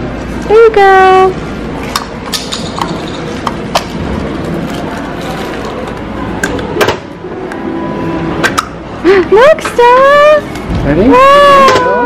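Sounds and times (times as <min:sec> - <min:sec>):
shop background noise: 0:00.0 - 0:12.0.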